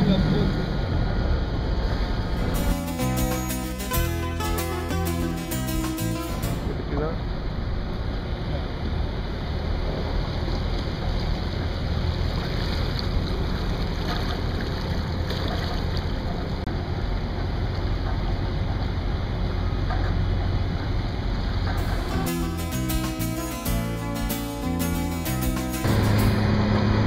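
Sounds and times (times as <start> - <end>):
boat motor rumbling: 0.0 - 27.0
music: 2.4 - 6.7, 21.8 - 27.0
water washing along hull: 8.2 - 22.0.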